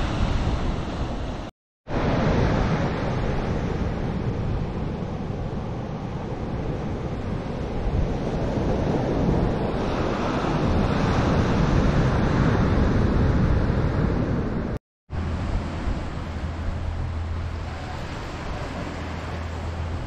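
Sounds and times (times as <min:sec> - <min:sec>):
ocean surf breaking: 0:00.0 - 0:20.0
wind buffeting microphone: 0:00.0 - 0:20.0.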